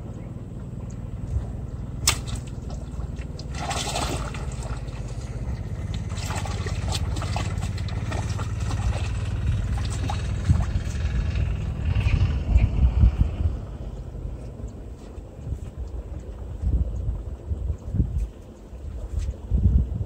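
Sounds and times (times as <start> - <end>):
steady low rumble: 0.0 - 20.0
fish splashing in water: 1.8 - 11.5
sharp click: 2.0 - 2.5.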